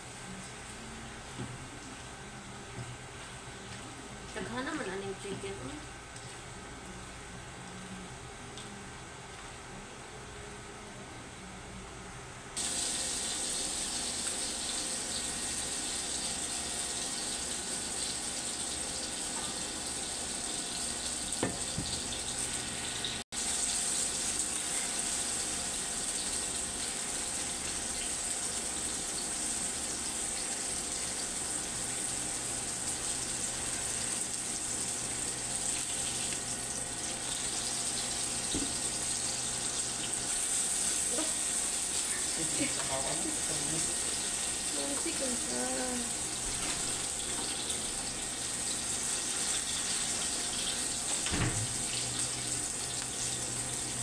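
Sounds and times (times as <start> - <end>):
chicken sizzling in oil: 12.6 - 54.0.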